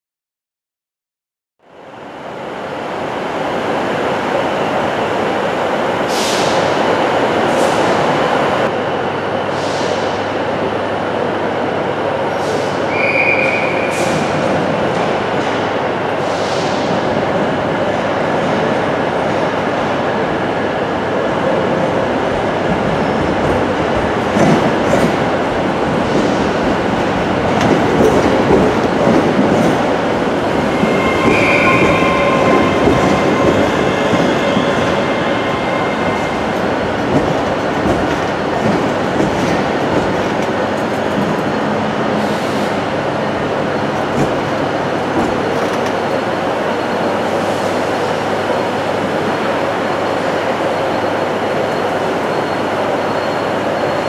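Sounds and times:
electric train rumbling: 1.6s - 54.0s
high squeal: 30.5s - 36.9s.

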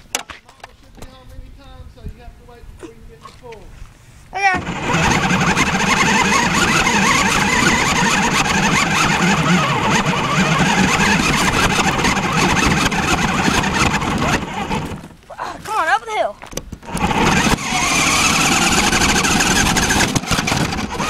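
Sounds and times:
radio-controlled car motor whining: 4.6s - 15.0s, 16.9s - 21.0s.

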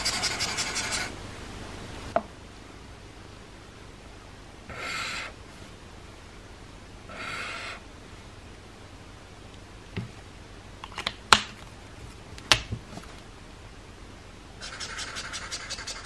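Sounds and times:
marker scratching on paper: 0.0s - 1.1s, 14.6s - 16.0s.

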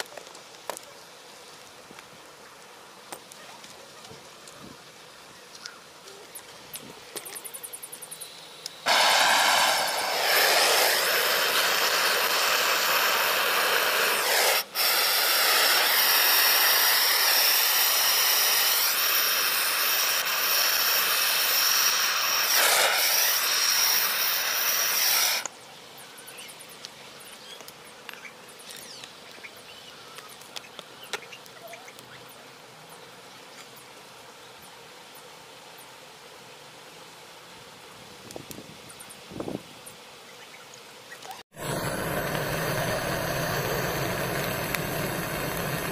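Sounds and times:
gas torch hissing: 8.6s - 25.5s, 41.5s - 45.9s.

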